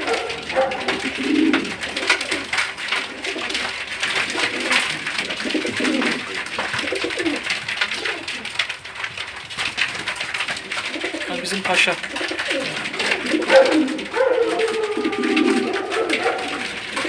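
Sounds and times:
birds pattering on cardboard: 0.0s - 17.0s
pigeons cooing: 0.0s - 17.0s.

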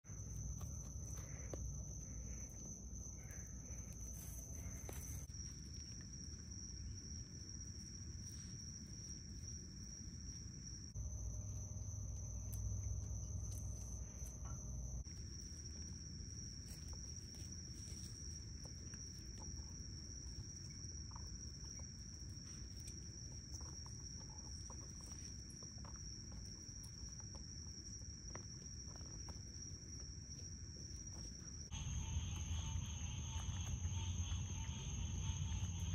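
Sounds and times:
night insects chorus: 0.1s - 35.9s.

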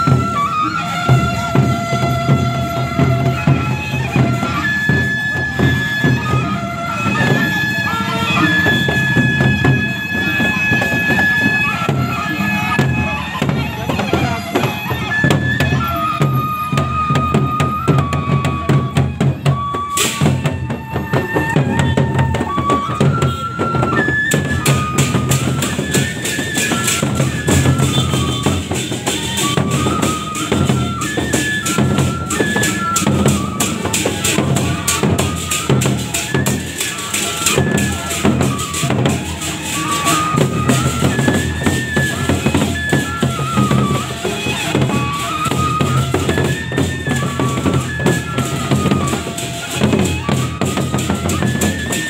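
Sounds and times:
barrel drums beating: 0.0s - 52.0s
reed pipe melody: 0.0s - 52.0s
cymbals clashing: 24.9s - 46.9s.

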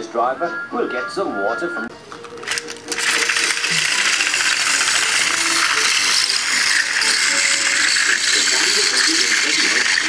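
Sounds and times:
toy train motor whirring rattle: 2.1s - 10.0s.

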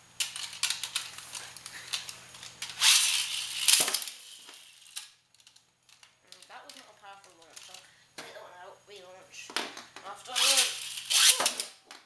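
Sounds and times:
ripcord launcher ratcheting rasp: 2.6s - 5.1s, 10.3s - 11.8s.

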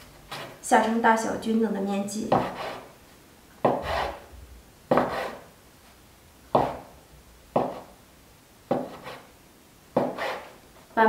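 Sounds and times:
knife chopping on cutting board: 2.3s - 2.9s, 3.6s - 4.3s, 4.9s - 5.4s, 6.5s - 6.9s, 7.6s - 7.9s, 8.7s - 9.2s, 10.0s - 10.5s.

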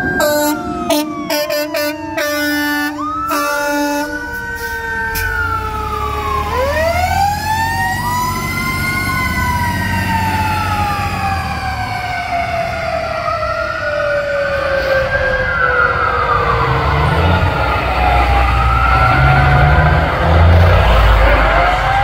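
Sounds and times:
siren wailing: 0.0s - 22.0s
truck engine rumbling: 0.0s - 22.0s.

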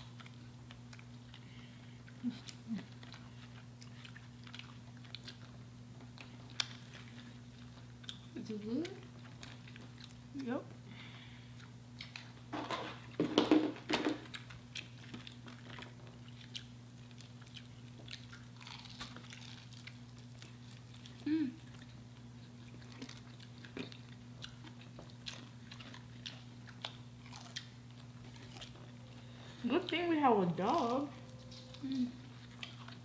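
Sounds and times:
crunching fried chicken: 0.0s - 30.0s, 30.7s - 33.0s
low hum: 18.6s - 33.0s.

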